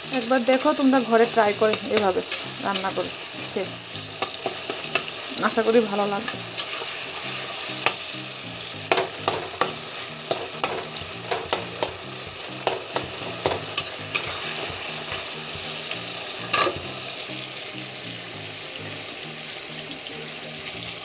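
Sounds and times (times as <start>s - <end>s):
spatula scraping and tapping pan: 0.0s - 3.1s, 4.2s - 5.6s, 8.8s - 12.0s, 12.6s - 15.2s
tomatoes sizzling in hot oil: 0.0s - 21.0s.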